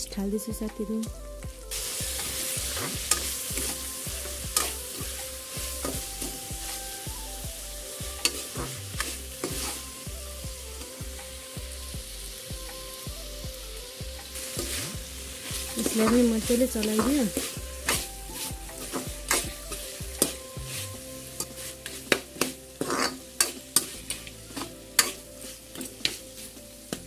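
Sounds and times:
food sizzling in wok: 0.0s - 27.0s.

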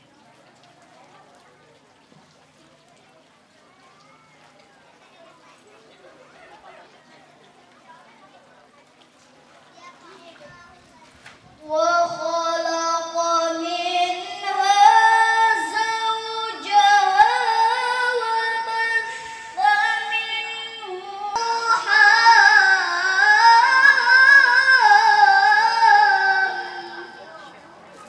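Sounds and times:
girl chanting recitation: 11.6s - 27.5s.

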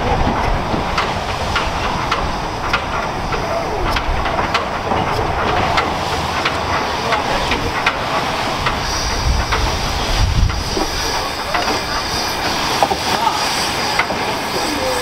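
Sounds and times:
sharp clicks from engine and rails: 0.0s - 15.0s
steam hissing from locomotive: 0.0s - 15.0s
higher steady hiss: 5.9s - 15.0s.

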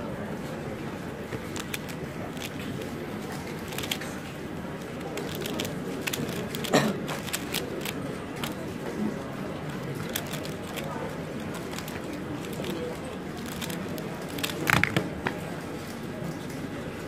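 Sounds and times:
room noise murmur: 0.0s - 17.0s
plastic puzzle clicking: 1.4s - 2.6s, 3.5s - 4.2s, 4.8s - 8.6s, 9.7s - 15.0s.

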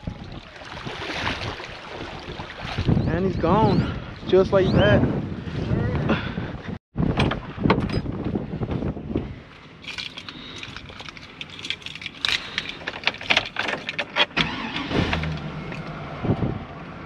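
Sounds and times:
keys jangling: 9.8s - 14.2s
truck engine starting and idling: 14.2s - 16.5s.

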